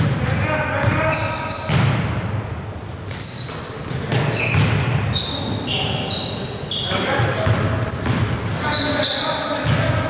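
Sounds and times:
sneakers squeaking on wood floor: 0.0s - 10.0s
basketball bouncing thuds: 1.7s - 2.0s, 4.1s - 5.0s, 7.2s - 8.4s, 9.6s - 10.0s.

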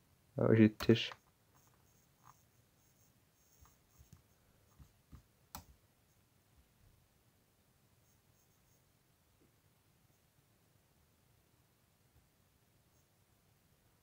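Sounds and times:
computer mouse clicks: 3.6s - 5.7s.

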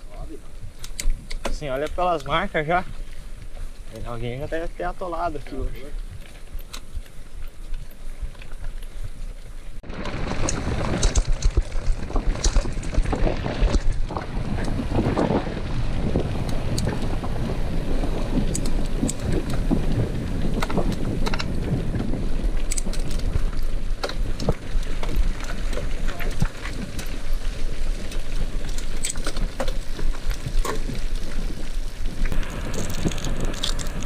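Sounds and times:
bike clicks and rattles: 0.0s - 34.0s
bike tyres on dirt: 0.0s - 34.0s
wind rushing over microphone: 9.8s - 34.0s.

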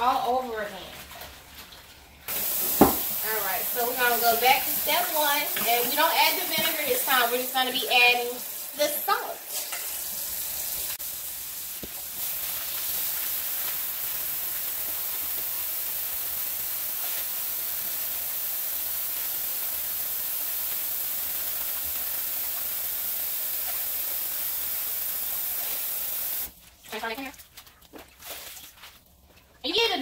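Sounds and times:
faucet water splashing in metal sink: 2.3s - 11.0s, 11.8s - 26.5s.

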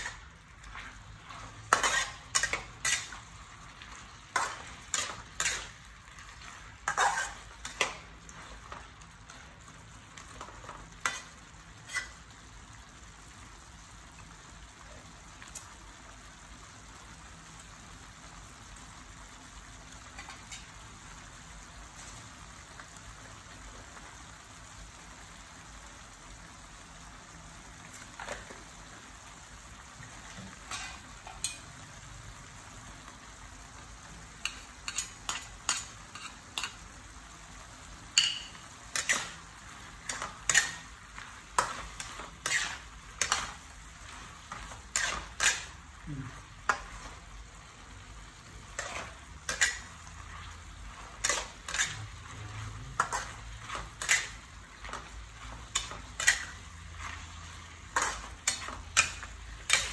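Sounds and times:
metal spatula scraping wok: 0.0s - 9.5s, 10.3s - 12.4s, 30.4s - 31.7s, 34.4s - 36.8s, 38.2s - 47.3s, 48.4s - 59.9s
food sizzling in a wok: 0.0s - 59.9s.

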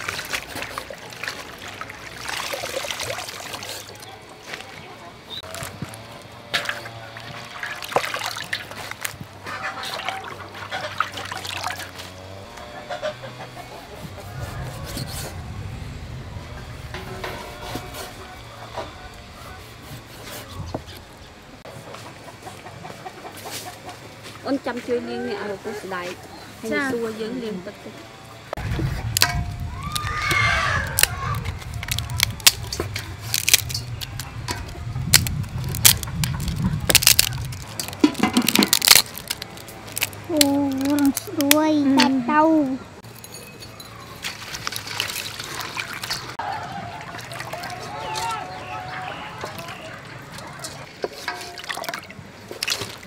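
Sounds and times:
water splashing and trickling: 0.0s - 13.5s, 28.5s - 53.0s
steady low rumble: 13.8s - 19.4s, 28.5s - 39.6s
dried sticks snapping: 29.1s - 42.1s.

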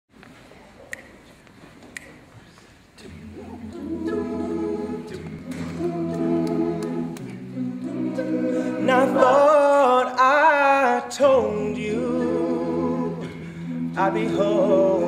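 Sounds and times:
a cappella group singing chords: 3.0s - 15.0s.

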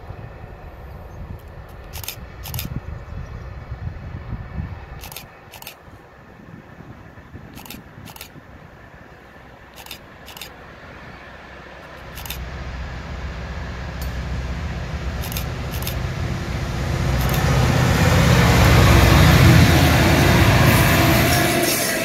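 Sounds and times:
diesel locomotive engines droning: 0.0s - 22.0s.

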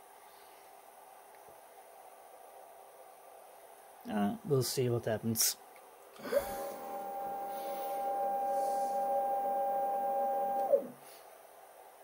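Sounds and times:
stepper motor whine: 6.2s - 11.0s.

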